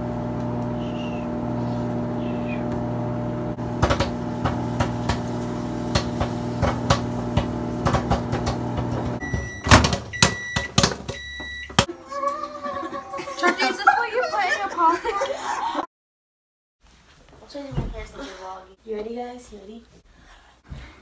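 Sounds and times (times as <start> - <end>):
electrical appliance hum: 0.0 - 12.4.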